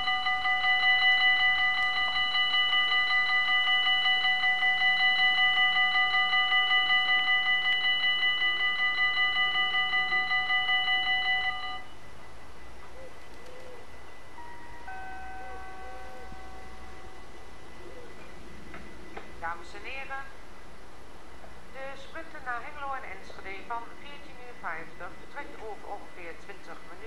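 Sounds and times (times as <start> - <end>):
level crossing warning bell ringing: 0.0 - 12.2, 14.2 - 18.3.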